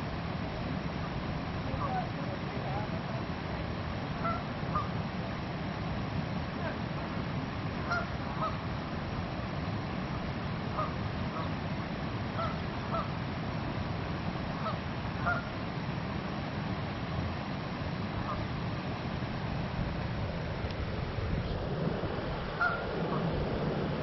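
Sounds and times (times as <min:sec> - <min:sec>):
low background noise: 0:00.0 - 0:24.0
geese calling: 0:04.2 - 0:04.9, 0:07.9 - 0:08.6, 0:10.8 - 0:11.5, 0:12.4 - 0:13.1, 0:14.6 - 0:15.5, 0:18.2 - 0:18.4, 0:22.6 - 0:23.3.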